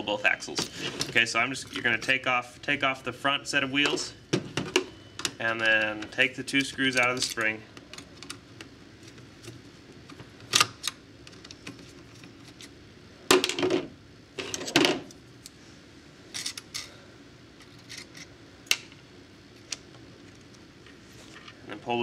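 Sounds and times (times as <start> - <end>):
small parts clicking and clattering: 16.3 - 16.9.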